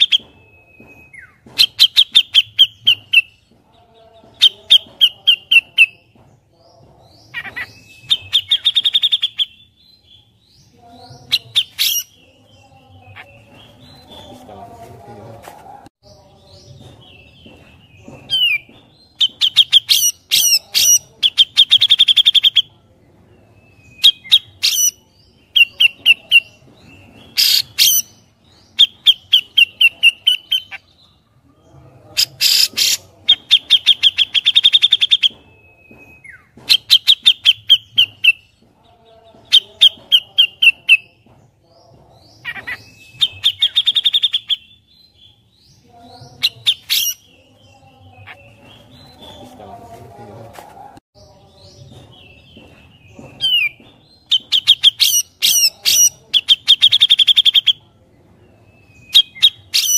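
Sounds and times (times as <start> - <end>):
bird chattering song: 0.0 - 15.0, 16.0 - 31.2, 32.2 - 50.2, 51.2 - 59.9
harsh rasping bird calls: 7.1 - 14.4, 18.3 - 22.7, 23.9 - 26.6, 27.3 - 30.9, 32.2 - 35.3, 42.3 - 49.6, 53.4 - 57.8.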